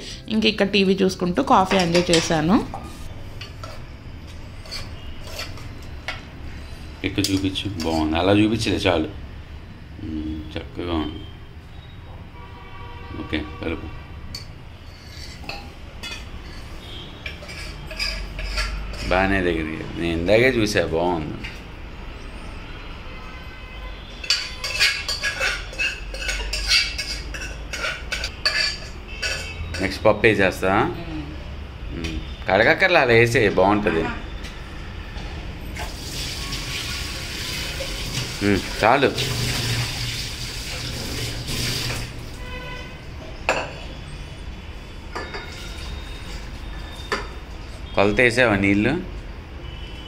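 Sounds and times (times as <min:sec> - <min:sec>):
metal vessels clinking together: 0:01.6 - 0:03.9, 0:04.5 - 0:06.3, 0:07.1 - 0:08.2, 0:14.3 - 0:19.4, 0:24.2 - 0:30.0, 0:43.4 - 0:44.0, 0:45.1 - 0:47.4
spoon scraping metal pot: 0:01.6 - 0:08.2, 0:14.3 - 0:19.4, 0:24.2 - 0:30.0
tap water running: 0:35.8 - 0:42.5.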